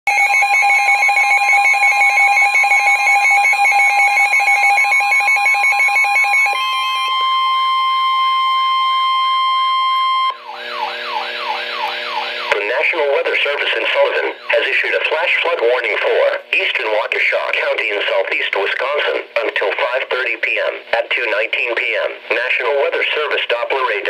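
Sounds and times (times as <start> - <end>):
pulsing alarm tone: 0.1 - 14.8
steady warning tone: 0.1 - 15.6
radio static: 10.5 - 24.0.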